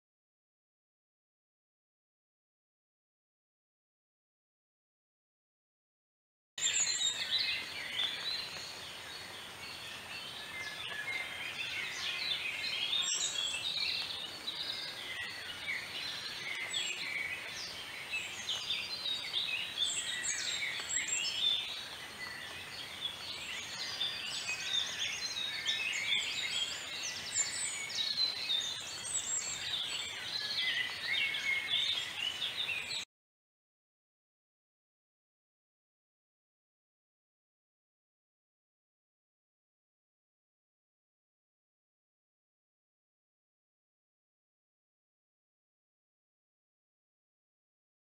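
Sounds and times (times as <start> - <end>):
many small birds chirping: 6.6 - 33.1.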